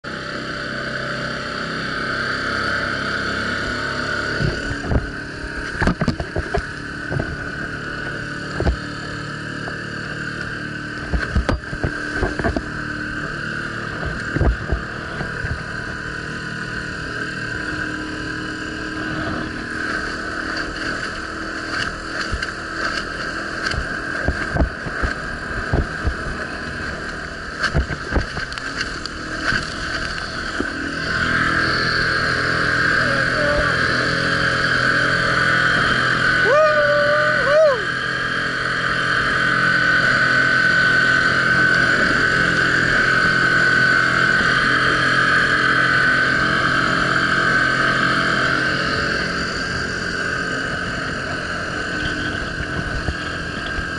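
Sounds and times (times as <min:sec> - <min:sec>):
outboard motor running: 0:00.0 - 0:53.9
water rushing: 0:00.2 - 0:53.9
hull slapping on water: 0:19.7 - 0:30.8.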